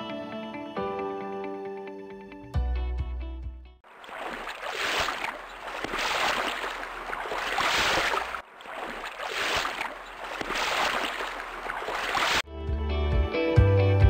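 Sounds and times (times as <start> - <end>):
waves washing: 3.8 - 12.4.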